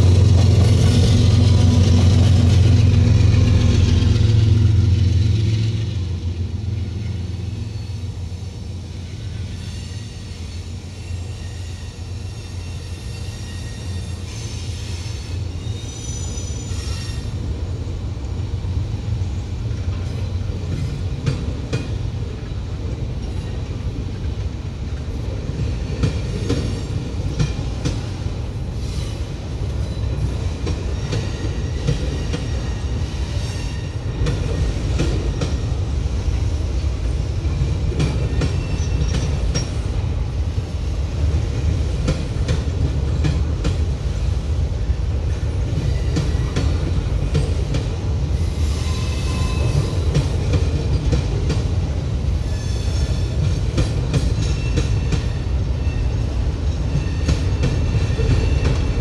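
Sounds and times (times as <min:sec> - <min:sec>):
freight train wheels rumbling: 0:00.0 - 0:59.0
high wheel squeals: 0:09.2 - 0:17.4, 0:54.4 - 0:59.0.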